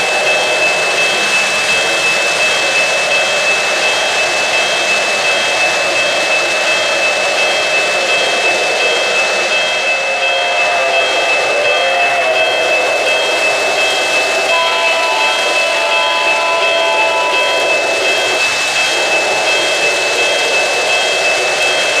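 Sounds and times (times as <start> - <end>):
high whine: 6.3 - 22.0
pulsing high tone: 9.7 - 20.4.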